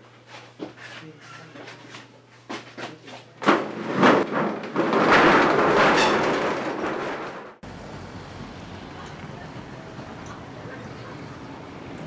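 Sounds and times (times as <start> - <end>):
metal shutter rattling: 3.4 - 7.6.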